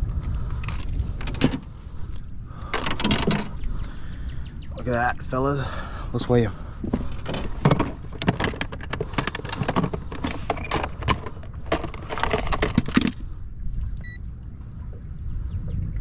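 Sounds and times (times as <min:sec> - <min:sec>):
contents rattling and clacking: 0:07.2 - 0:13.2.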